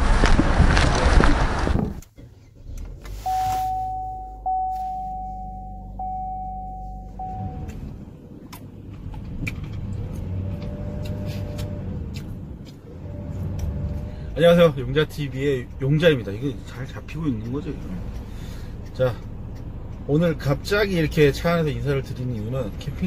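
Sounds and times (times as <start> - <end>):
car engine starting and idling: 0.2 - 23.0
high electronic tone: 3.2 - 7.8.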